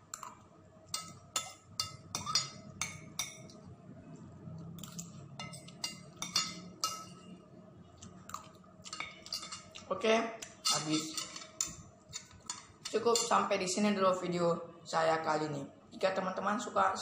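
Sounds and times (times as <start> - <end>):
cutlery clinking on glass plate: 1.0 - 3.6, 4.8 - 7.2, 8.3 - 9.8, 10.4 - 13.4.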